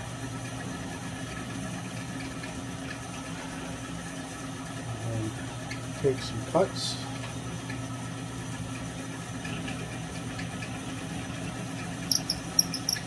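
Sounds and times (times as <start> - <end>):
sharp high-pitched ticks: 12.1 - 13.0.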